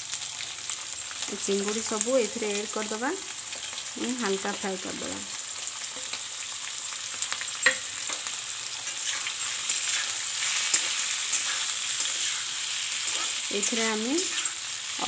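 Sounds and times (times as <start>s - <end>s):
prawns sizzling in hot oil: 0.0s - 15.0s
metal spatula scraping pan: 8.9s - 14.8s.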